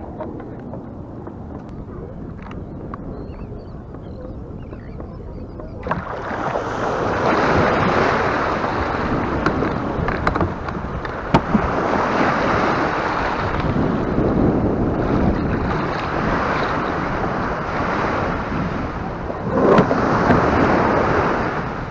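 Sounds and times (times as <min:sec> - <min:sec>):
wind buffeting microphone: 0:00.0 - 0:21.9
small surf breaking: 0:05.8 - 0:14.1.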